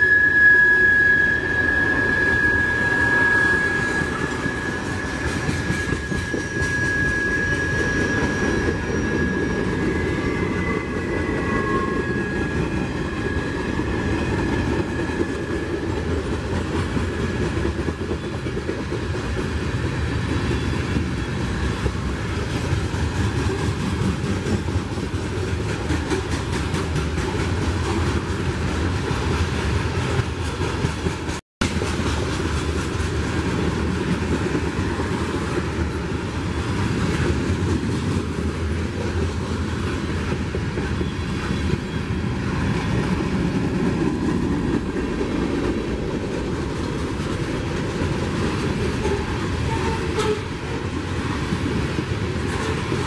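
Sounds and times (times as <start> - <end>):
high wheel squeal: 0.0 - 16.0
train wheels rumbling on rails: 0.0 - 53.0.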